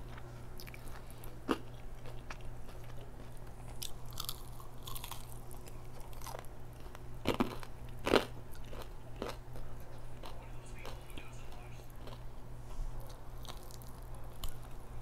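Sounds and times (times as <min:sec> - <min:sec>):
fried chicken crust crunching: 0:00.0 - 0:12.3, 0:13.0 - 0:14.8.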